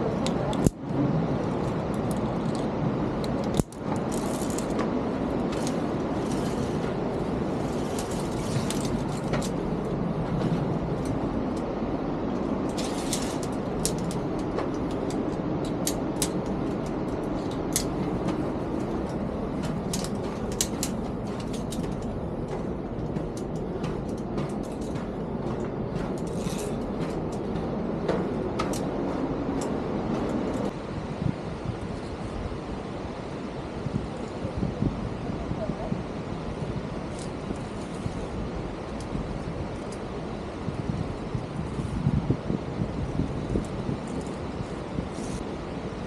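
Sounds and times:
steady rushing noise: 0.0s - 46.0s
climbing gear clinking: 3.4s - 11.7s, 12.4s - 30.8s, 43.4s - 45.4s.

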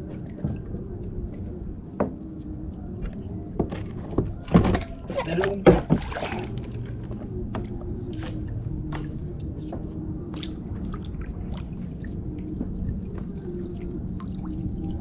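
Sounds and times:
knocks and thumps on plastic kayak: 3.6s - 6.6s.

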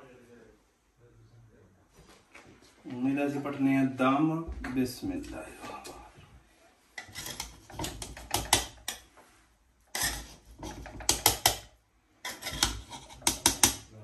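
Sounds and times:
metal spoon scraping a pot: 7.0s - 9.1s, 9.9s - 13.9s.

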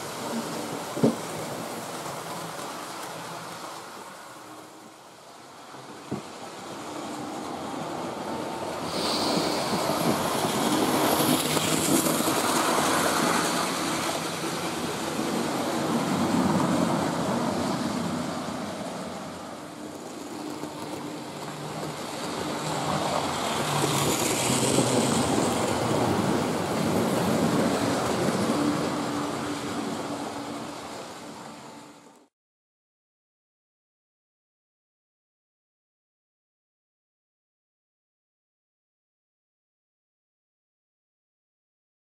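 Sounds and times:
model train wheels rumbling on rails: 0.0s - 32.3s.

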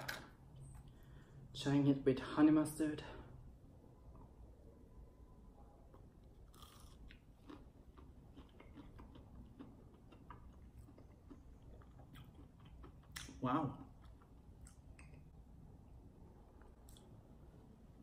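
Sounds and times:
faint chewing: 5.9s - 15.3s.

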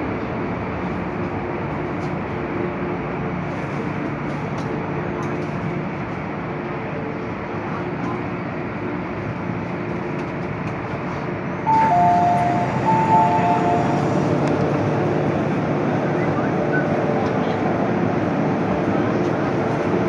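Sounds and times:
train running rumble: 0.0s - 20.0s
train doors opening: 11.6s - 15.0s
two-tone door chime: 11.7s - 14.1s.

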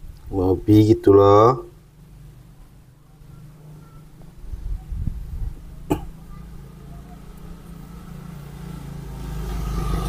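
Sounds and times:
vehicle engine hum: 1.7s - 10.0s.

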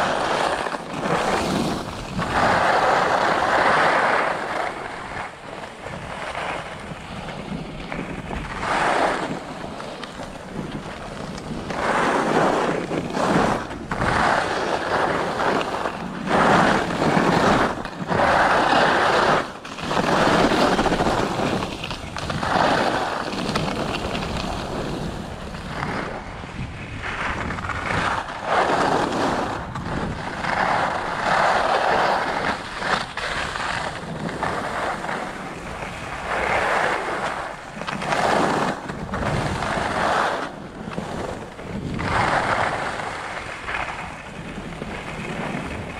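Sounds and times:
skis scraping over packed snow: 0.0s - 45.9s
wind on microphone: 0.0s - 45.9s.

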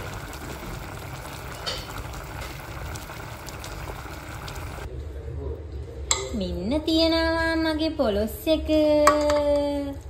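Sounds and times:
curry bubbling with small pops: 0.0s - 4.9s.

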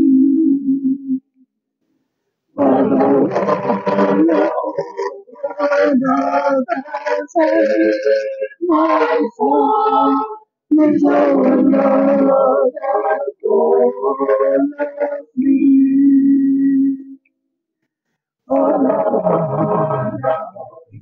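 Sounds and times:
mixed choir singing gospel: 2.6s - 16.5s, 18.5s - 21.0s.

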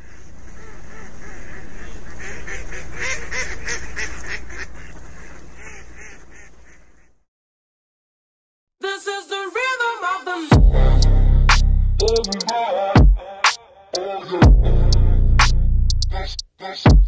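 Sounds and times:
ducks and geese honking and quacking: 0.0s - 7.2s.

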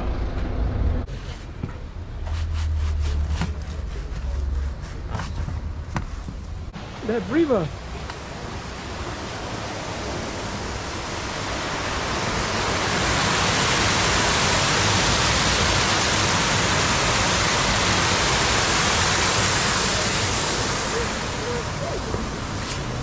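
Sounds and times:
water rushing over stone weir: 6.8s - 23.0s.

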